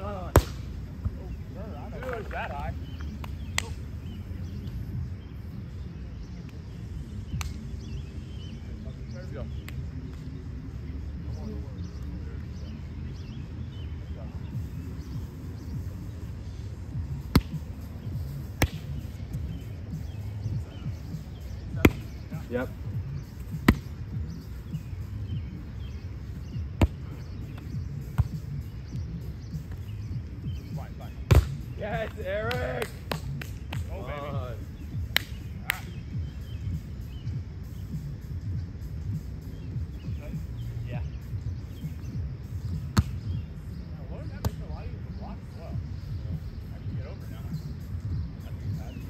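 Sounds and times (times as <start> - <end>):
steady low rumble: 0.0 - 49.0
hands smacking a volleyball: 0.3 - 0.6, 3.2 - 3.8, 7.4 - 7.6, 17.3 - 17.6, 18.6 - 19.0, 31.3 - 31.6, 32.5 - 33.9, 35.1 - 35.9, 42.9 - 43.2
volleyball being hit: 0.3 - 0.7, 17.3 - 17.6, 18.6 - 19.0, 31.3 - 31.6, 42.9 - 43.2.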